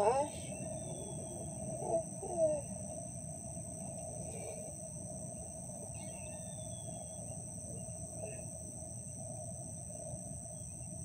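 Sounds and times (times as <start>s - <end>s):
faint bird chirps: 0.0s - 2.9s, 5.3s - 8.6s
insects trilling: 0.0s - 11.0s
low background rumble: 0.0s - 11.0s.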